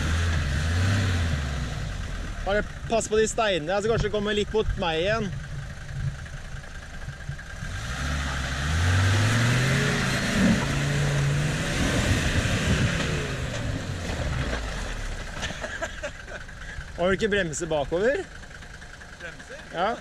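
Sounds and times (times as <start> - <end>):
off-road vehicle engine revving: 0.0 - 20.0.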